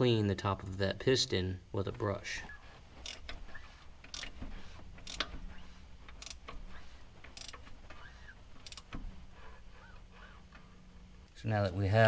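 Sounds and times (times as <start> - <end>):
low steady hum: 0.0 - 12.0
ratchet clicking: 3.0 - 9.1.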